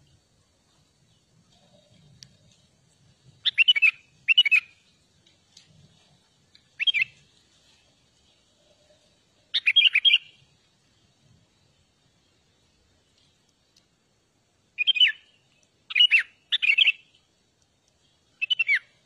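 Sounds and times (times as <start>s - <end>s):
bulbul singing: 3.4s - 5.0s, 6.7s - 7.2s, 9.5s - 10.5s, 14.8s - 17.2s, 18.4s - 19.0s.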